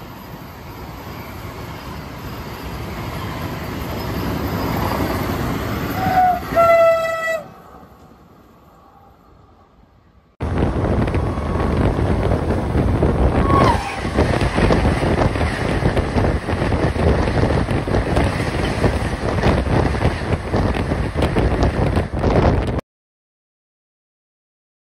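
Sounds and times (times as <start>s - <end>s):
train passing at high speed: 0.0s - 22.8s
wind buffeting microphone: 10.4s - 22.8s.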